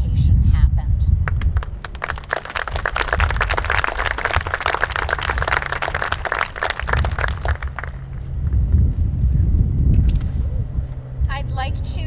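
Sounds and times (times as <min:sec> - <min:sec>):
low steady hum: 0:00.0 - 0:12.0
audience applauding: 0:01.3 - 0:08.2.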